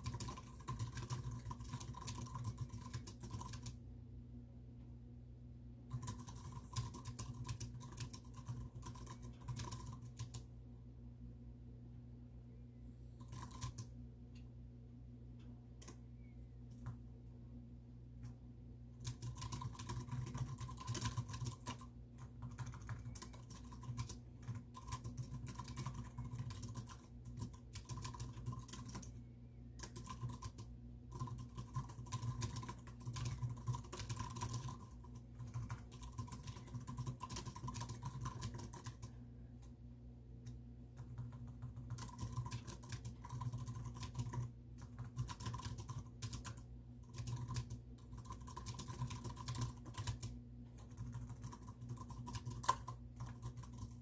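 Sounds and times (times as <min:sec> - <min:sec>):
low hum: 0:07.6 - 0:20.3.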